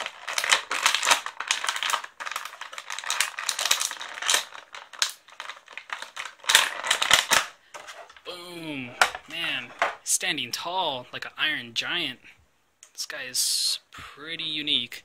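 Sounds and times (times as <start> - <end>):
plastic packaging crinkling: 0.0 - 8.3.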